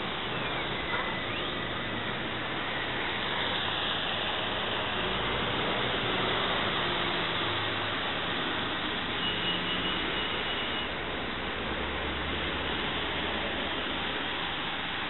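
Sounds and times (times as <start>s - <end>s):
vehicle engine noise: 0.0s - 9.2s
tyres hissing on wet road: 0.0s - 15.0s.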